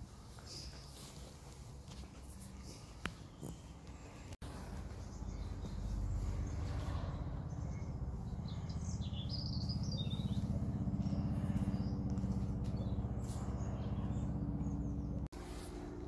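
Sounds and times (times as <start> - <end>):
small birds chirping: 2.5 - 15.3
low pulsing hum: 4.2 - 16.0.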